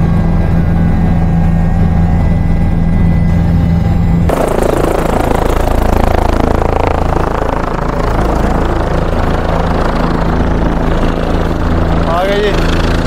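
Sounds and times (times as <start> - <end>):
helicopter turbine and rotor hum: 0.0 - 13.0.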